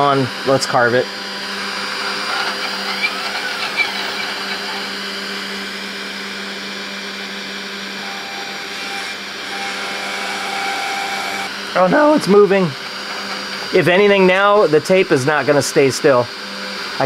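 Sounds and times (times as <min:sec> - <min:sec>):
router spindle humming: 0:00.0 - 0:17.0
bit engraving into metal: 0:02.0 - 0:05.0.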